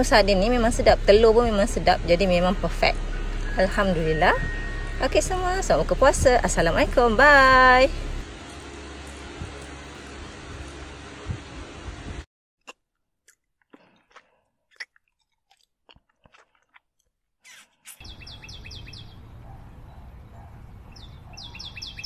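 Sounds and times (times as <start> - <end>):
eating and chewing clicks: 12.6 - 18.0.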